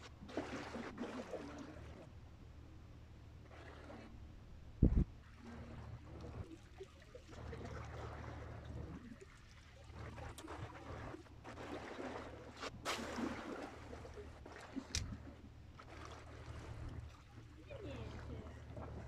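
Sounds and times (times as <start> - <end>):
sea water lapping and splashing: 0.0 - 2.2, 3.3 - 19.0
wind rumble on microphone: 4.7 - 5.2.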